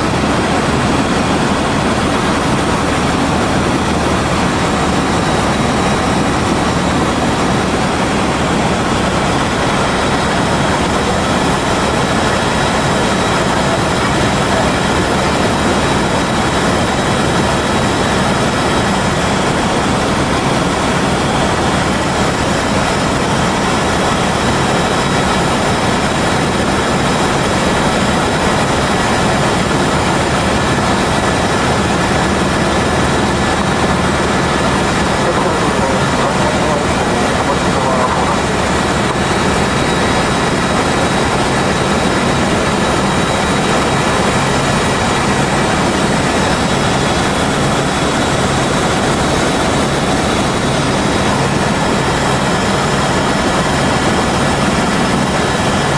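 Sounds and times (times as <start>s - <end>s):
helicopter cabin drone: 0.0s - 55.9s.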